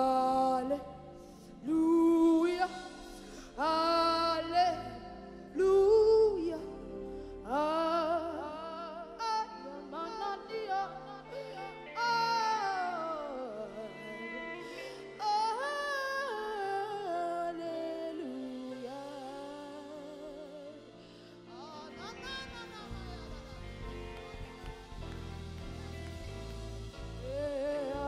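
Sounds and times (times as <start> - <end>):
woman singing gospel: 0.0 - 28.0
sustained keyboard and bass chords: 18.9 - 28.0.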